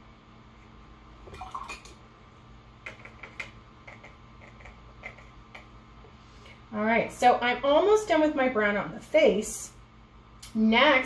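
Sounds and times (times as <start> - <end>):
paintbrush clicking against jar: 2.8 - 5.7.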